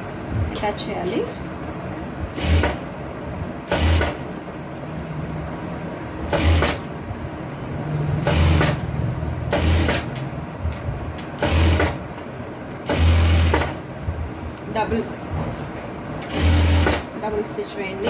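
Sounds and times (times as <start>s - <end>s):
sewing machine running: 2.4s - 2.8s, 3.7s - 4.2s, 6.3s - 6.9s, 8.2s - 8.8s, 9.5s - 10.1s, 11.4s - 12.0s, 12.8s - 13.8s, 16.2s - 17.1s.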